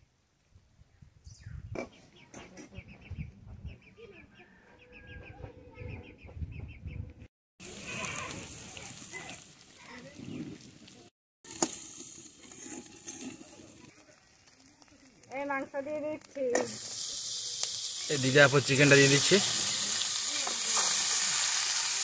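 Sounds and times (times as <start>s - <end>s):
steady hiss: 16.6s - 22.0s.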